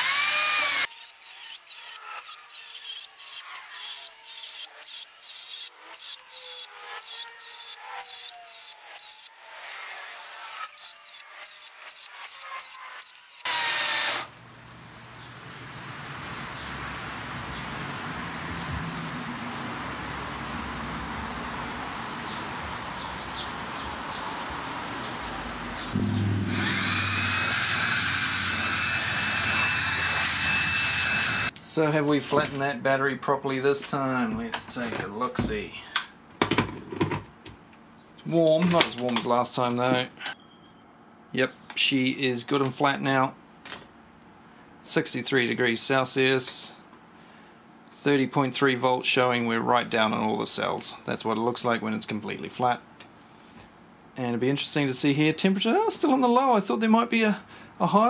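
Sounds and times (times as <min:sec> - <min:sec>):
cordless blower whine: 0:00.0 - 0:00.9, 0:25.9 - 0:31.5
chainsaw cutting wood: 0:00.0 - 0:14.3, 0:26.0 - 0:31.5.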